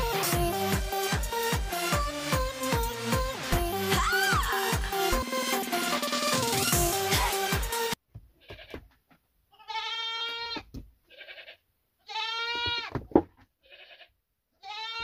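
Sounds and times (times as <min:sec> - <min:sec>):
goats bleating: 0:09.5 - 0:13.0, 0:13.6 - 0:15.0.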